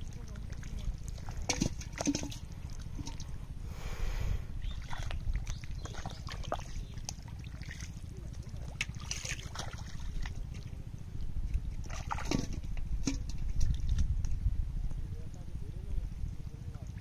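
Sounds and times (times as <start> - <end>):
steady low rumble: 0.0 - 17.0
hands splashing in shallow water: 4.6 - 10.7.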